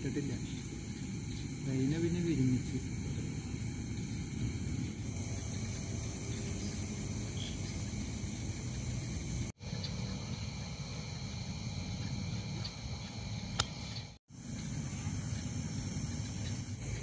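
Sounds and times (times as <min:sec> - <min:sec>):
crickets chirring: 0:00.0 - 0:17.0
sharp click: 0:13.6 - 0:13.8.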